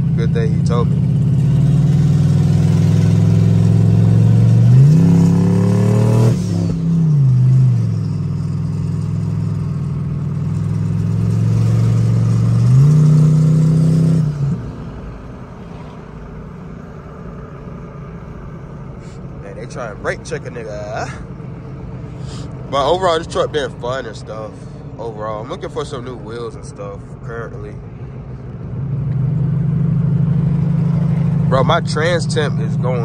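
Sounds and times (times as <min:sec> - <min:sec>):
truck engine revving: 0:00.0 - 0:16.3.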